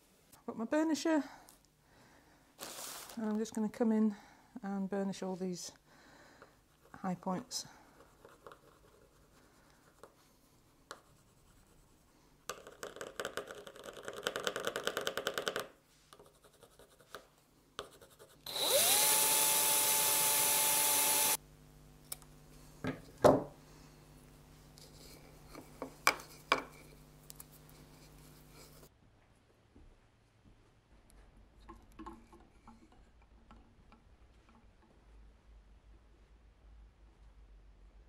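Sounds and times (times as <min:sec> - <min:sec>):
electric drill whining: 0:18.5 - 0:21.4.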